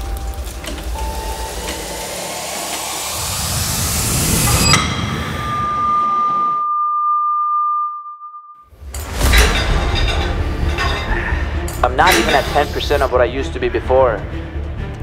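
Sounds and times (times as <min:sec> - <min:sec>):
rising whoosh: 0:02.1 - 0:06.8
sharp hit: 0:02.5 - 0:06.7
high steady tone: 0:03.2 - 0:08.7.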